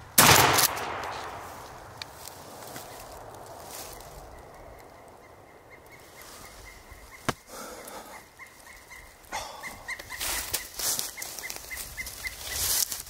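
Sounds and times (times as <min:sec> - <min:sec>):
sharp snap: 0:00.2 - 0:02.1
wild turkey calling: 0:02.5 - 0:13.0.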